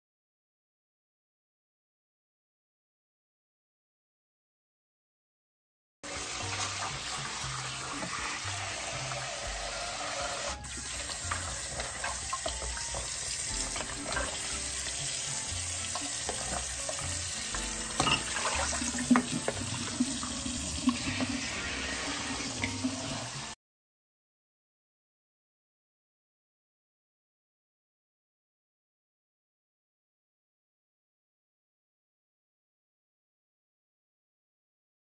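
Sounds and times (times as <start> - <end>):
tap water splashing into bowl: 15.9 - 21.2.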